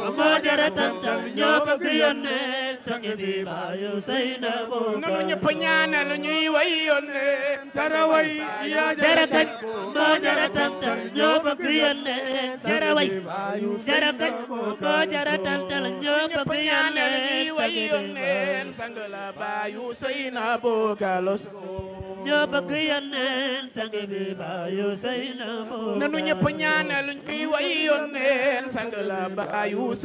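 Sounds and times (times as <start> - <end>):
group of voices chanting: 8.1 - 12.0.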